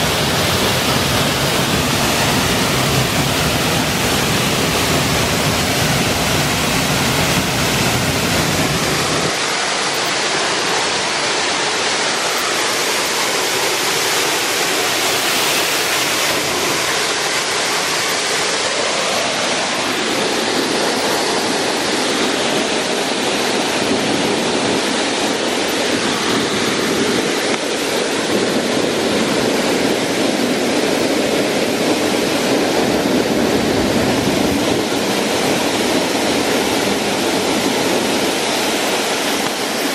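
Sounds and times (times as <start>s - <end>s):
waterfall pouring onto rock: 0.0s - 22.7s.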